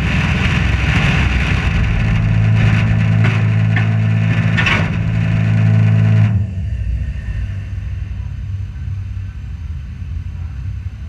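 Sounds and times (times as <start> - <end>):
low rumble: 0.0 - 11.0
race car engine idling: 0.0 - 11.0.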